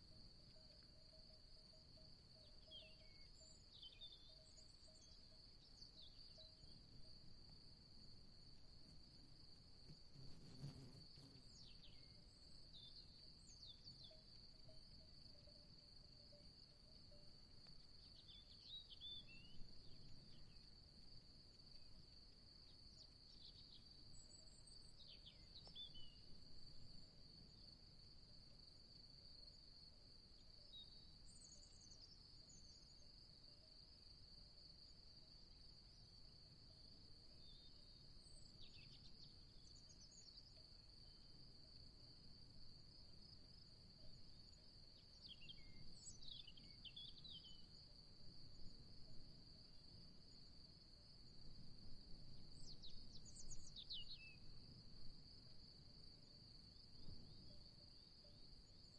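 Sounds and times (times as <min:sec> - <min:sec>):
insect trill: 0:00.0 - 0:58.9
bird chirps: 0:02.4 - 0:06.8.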